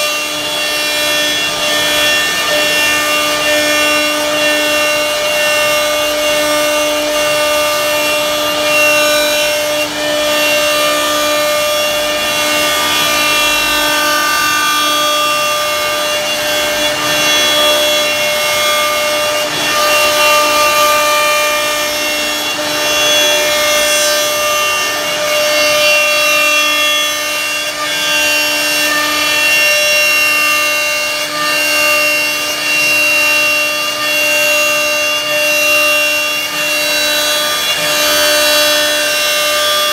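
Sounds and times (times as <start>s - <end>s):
router bit rasping wood: 0.0s - 39.9s
router spindle whine: 0.0s - 39.9s.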